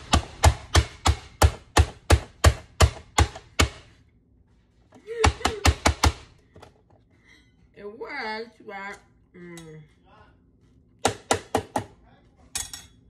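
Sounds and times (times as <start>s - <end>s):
vegetable dicer chopping: 0.0s - 4.0s, 11.0s - 12.0s.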